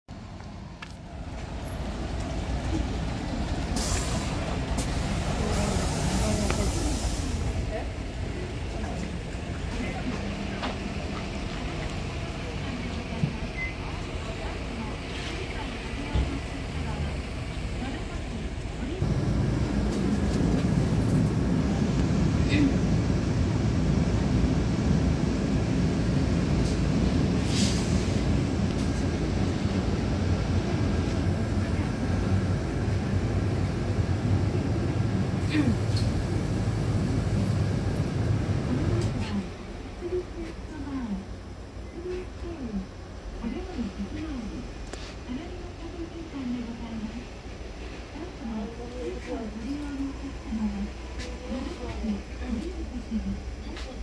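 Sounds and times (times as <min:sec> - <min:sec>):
bus engine rumble: 0:00.1 - 0:54.0
compressed-air hiss: 0:05.0 - 0:07.5.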